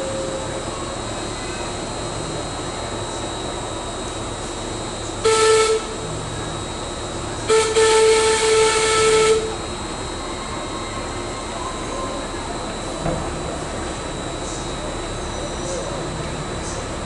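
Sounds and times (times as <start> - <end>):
locomotive whistle blasts: 5.2 - 6.0, 7.4 - 9.7.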